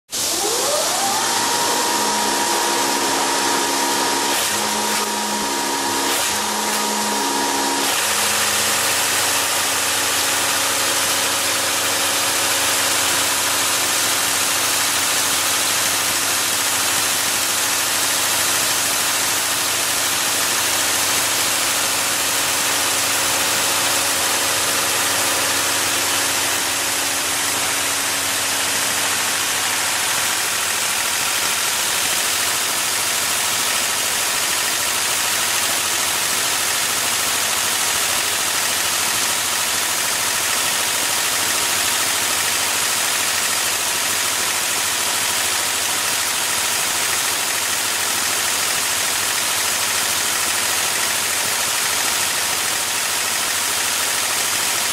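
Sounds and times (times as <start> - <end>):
machine hum and rush: 0.2 - 32.7
welding machine whine: 0.2 - 54.9.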